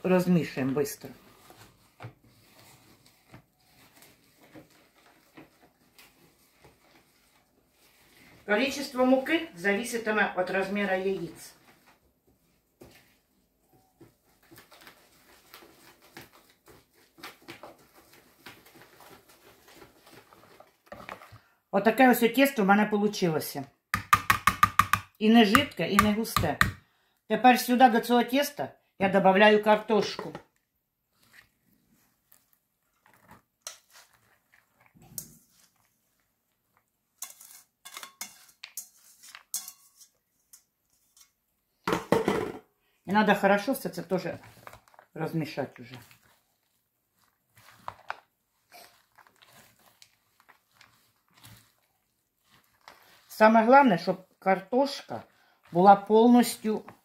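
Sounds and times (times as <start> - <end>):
wire whisk tapping a plastic bowl: 24.0 - 26.8
metal colander scraping a bowl: 37.2 - 41.4.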